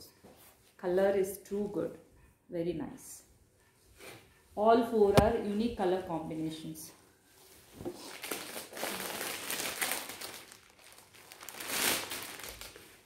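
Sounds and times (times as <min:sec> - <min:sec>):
plastic wrapper crinkling: 0:08.0 - 0:13.0.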